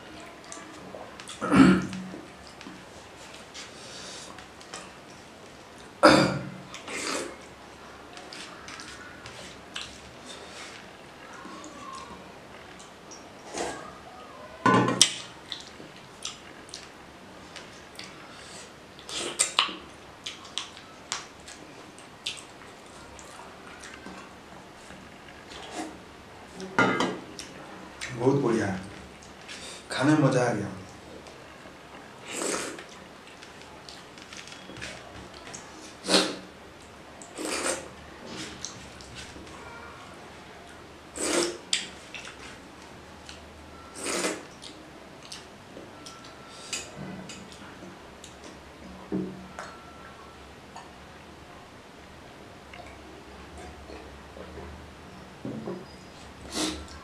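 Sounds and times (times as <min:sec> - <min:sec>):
person slurping food: 0:32.3 - 0:32.8, 0:37.4 - 0:37.9, 0:41.2 - 0:41.6, 0:44.0 - 0:44.5, 0:56.5 - 0:56.9.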